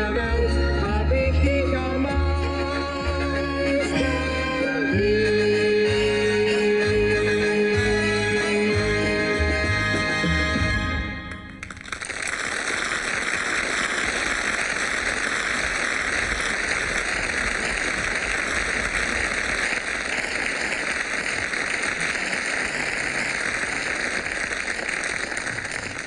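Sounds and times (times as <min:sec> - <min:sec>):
audience applauding: 0:11.3 - 0:26.0.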